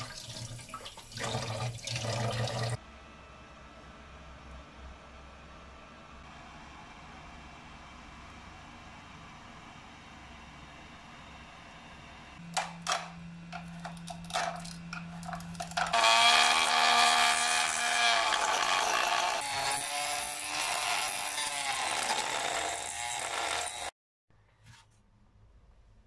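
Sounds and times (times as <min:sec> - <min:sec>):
rotary tool cutting plastic: 0:13.6 - 0:23.9.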